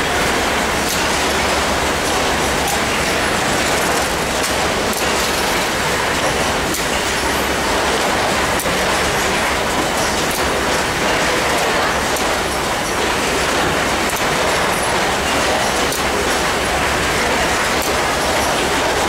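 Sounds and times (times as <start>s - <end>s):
machinery mechanical rattle: 0.0s - 19.0s
sharp machine clicks: 0.8s - 7.6s.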